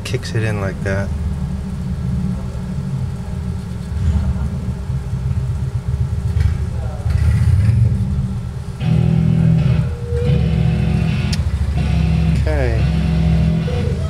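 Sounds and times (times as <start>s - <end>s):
jukebox mechanism humming: 7.8s - 14.0s.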